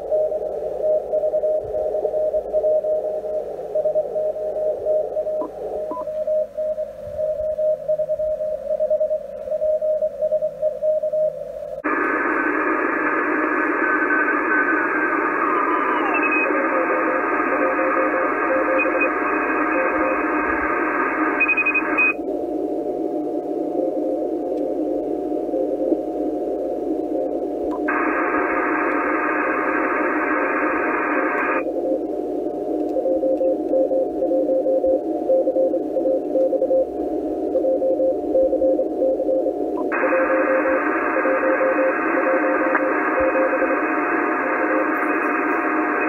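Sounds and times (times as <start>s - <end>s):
morse code signal: 0.0s - 46.0s
radio band hiss: 11.7s - 46.0s
higher-pitched morse signal: 11.9s - 22.3s, 23.6s - 46.0s.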